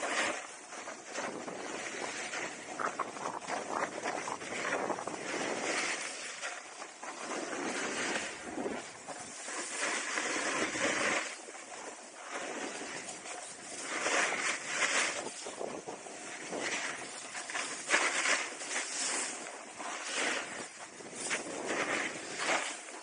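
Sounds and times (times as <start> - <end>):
skis scraping over snow: 0.0 - 23.0.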